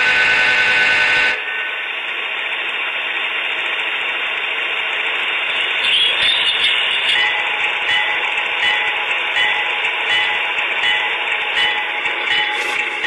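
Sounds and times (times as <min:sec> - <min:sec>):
model train horn: 0:00.0 - 0:01.4
model train running: 0:00.0 - 0:13.0.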